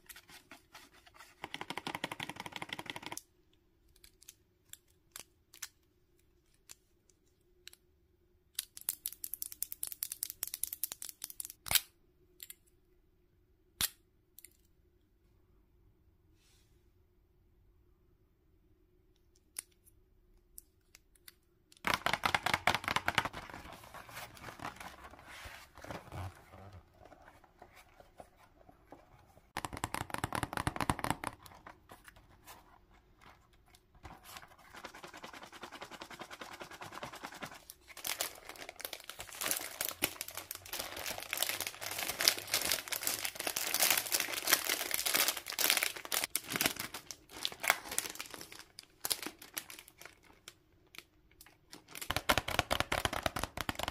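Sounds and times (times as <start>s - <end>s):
plastic packaging crinkling: 37.3s - 53.7s.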